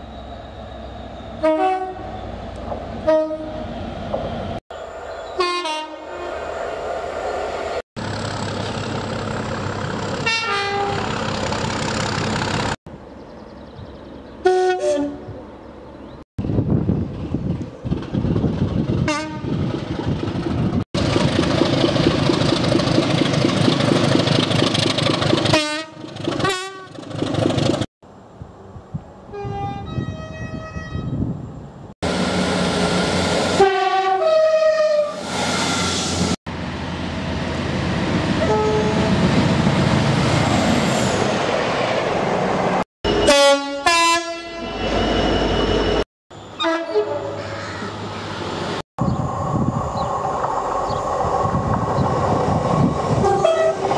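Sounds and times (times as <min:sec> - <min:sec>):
trains running on rails: 0:00.0 - 0:13.2, 0:15.3 - 0:53.9
train horns: 0:01.4 - 0:02.2, 0:03.0 - 0:03.7, 0:05.4 - 0:06.4, 0:10.2 - 0:11.2, 0:14.4 - 0:15.4, 0:19.1 - 0:19.6, 0:25.5 - 0:27.0, 0:29.3 - 0:31.2, 0:33.5 - 0:35.2, 0:38.3 - 0:39.3, 0:43.1 - 0:44.8, 0:46.6 - 0:47.6, 0:53.2 - 0:53.9.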